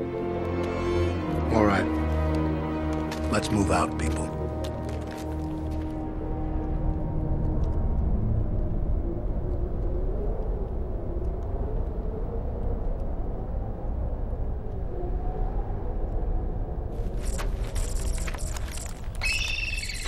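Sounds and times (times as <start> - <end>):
low rumble: 4.4 - 19.2.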